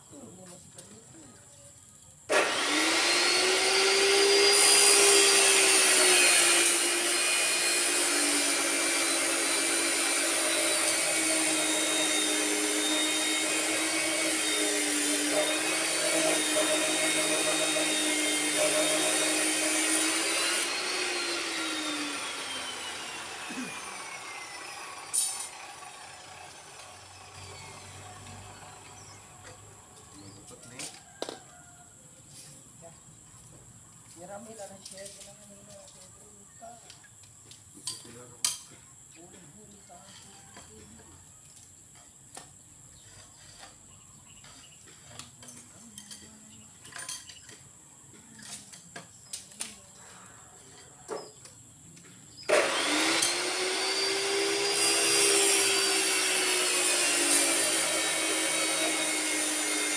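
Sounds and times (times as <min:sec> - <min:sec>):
electric power saw whining: 0:02.3 - 0:30.3, 0:52.4 - 0:59.9.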